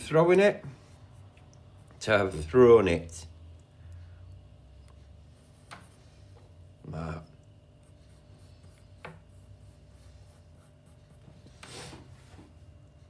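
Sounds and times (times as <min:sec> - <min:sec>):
pencil scratching on paper: 0:00.6 - 0:02.1, 0:05.2 - 0:06.4, 0:07.7 - 0:12.1.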